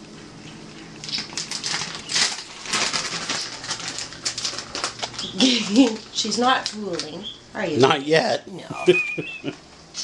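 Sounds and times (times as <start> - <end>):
plastic bag crinkling: 0.7 - 7.2.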